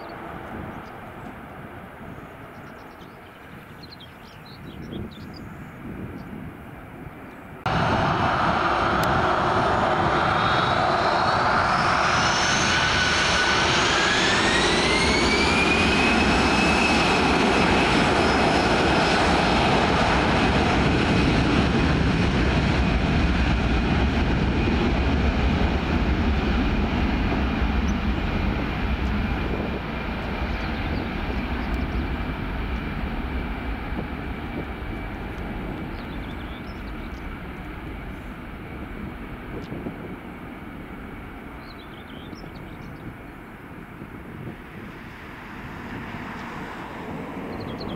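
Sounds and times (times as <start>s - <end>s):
jet engines spooling up: 7.7s - 40.2s, 44.2s - 47.9s.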